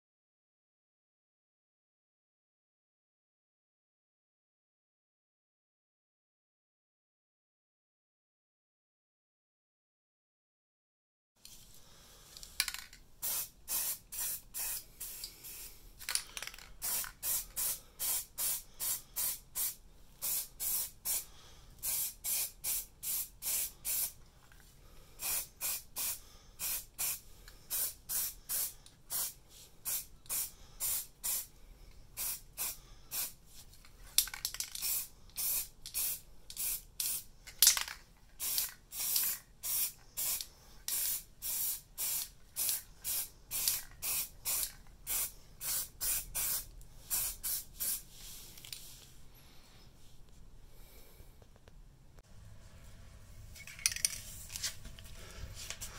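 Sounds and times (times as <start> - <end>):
aerosol can spraying: 12.7 - 15.8, 16.8 - 24.2, 25.2 - 31.5, 32.2 - 33.4, 34.7 - 37.3, 38.4 - 48.1.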